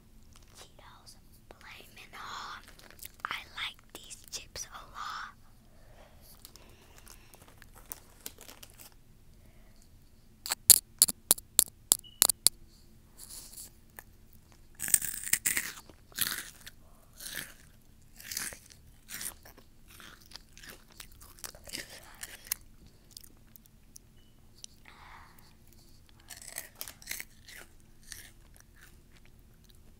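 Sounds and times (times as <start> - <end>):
crunching and chewing snacks: 2.4 - 3.2, 6.4 - 9.0, 13.2 - 24.8, 25.7 - 29.9.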